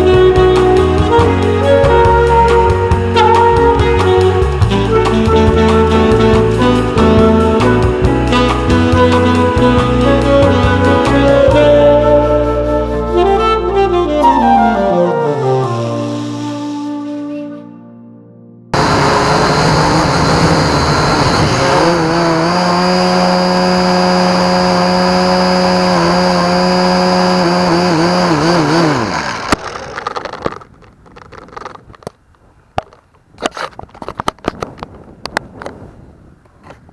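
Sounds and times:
drone motors whining: 18.8s - 31.7s
sharp clicks and knocks: 29.4s - 32.2s.

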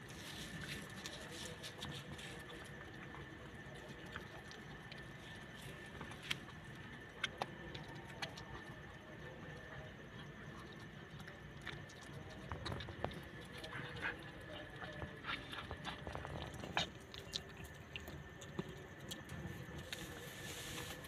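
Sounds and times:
low background noise: 0.0s - 21.0s
dog eating clicks: 6.0s - 19.8s.

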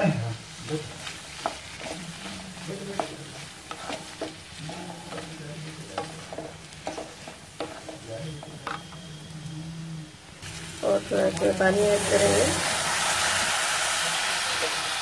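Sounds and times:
spatula scraping a pan: 0.0s - 9.8s
light sizzle of cooking: 0.0s - 15.0s.

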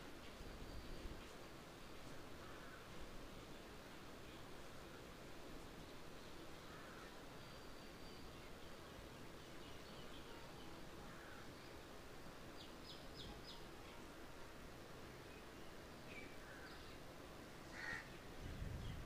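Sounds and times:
small waterfall: 0.0s - 18.4s
birds calling: 17.6s - 19.0s.

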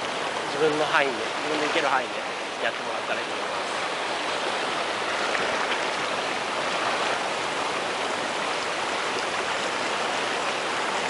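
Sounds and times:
river rapids rushing: 0.0s - 11.0s.

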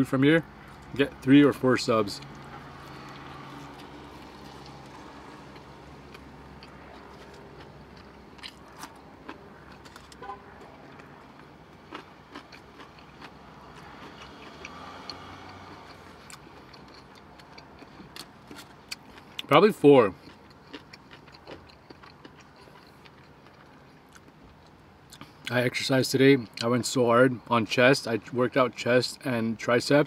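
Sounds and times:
close chewing of sandwich: 2.2s - 25.4s.

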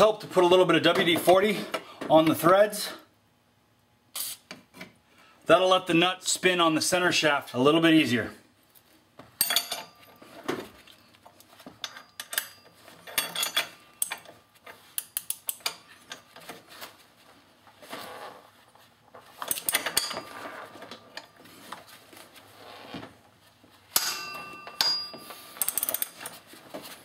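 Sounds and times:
wrench clinking on metal tool: 9.4s - 10.0s, 11.8s - 14.3s, 19.5s - 20.3s, 24.0s - 26.4s.

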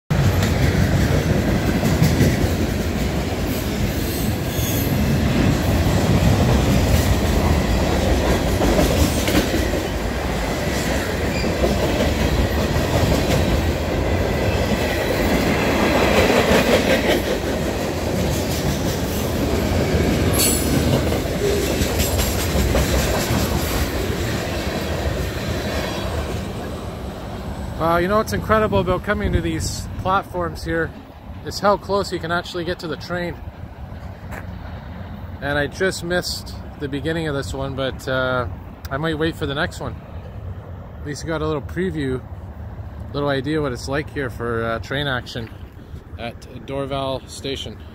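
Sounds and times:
train wheels rumbling on rails: 0.1s - 47.9s
wheels clattering over rail joints: 0.2s - 26.6s.

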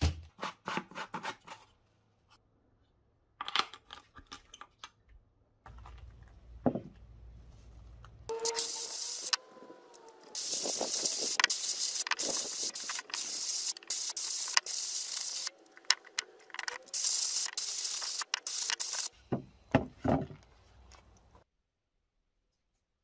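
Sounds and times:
air blast gun hissing: 8.4s - 9.4s, 10.3s - 15.5s, 16.9s - 19.1s.

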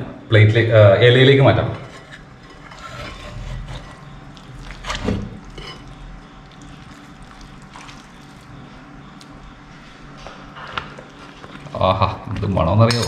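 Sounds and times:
utensils scraping metal pot: 1.8s - 4.2s
thick curry being stirred: 1.9s - 13.0s.

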